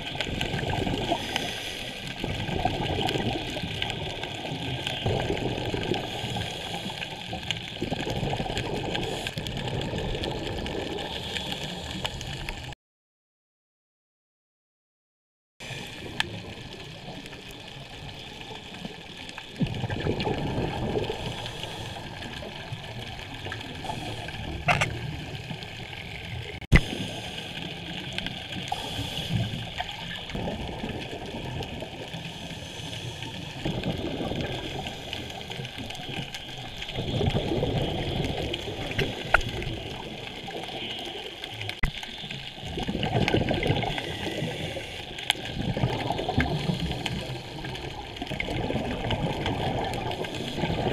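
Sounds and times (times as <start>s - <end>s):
regulator bubbling underwater: 0.0s - 12.7s, 15.6s - 50.9s
steady hiss: 1.1s - 2.2s, 26.8s - 30.3s, 32.0s - 33.6s.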